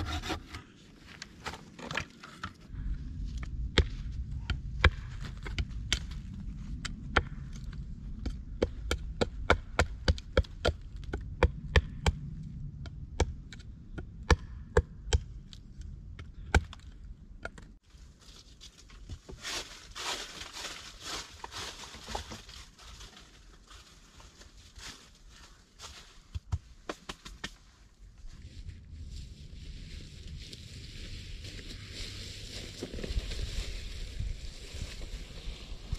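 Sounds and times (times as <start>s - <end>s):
hatchet chopping wood: 14.2s - 15.3s.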